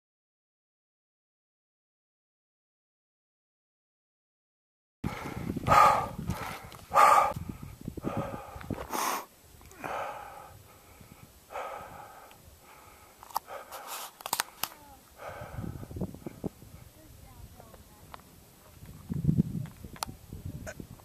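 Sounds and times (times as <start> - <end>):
heavy breathing: 5.0 - 17.0.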